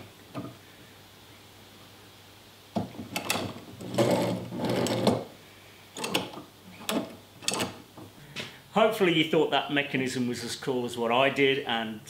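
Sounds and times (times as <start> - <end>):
metal clicks and clunks: 2.8 - 5.2, 6.0 - 8.1
threaded rod scraping rattle: 3.2 - 5.2, 6.0 - 7.8.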